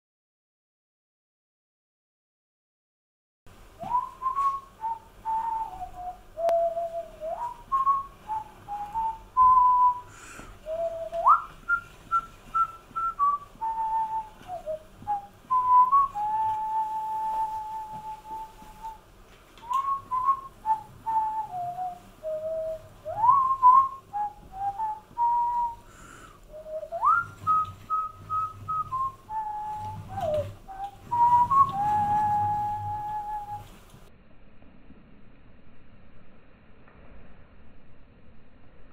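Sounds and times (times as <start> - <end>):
person whistling a tune: 3.8 - 19.0, 19.6 - 33.8.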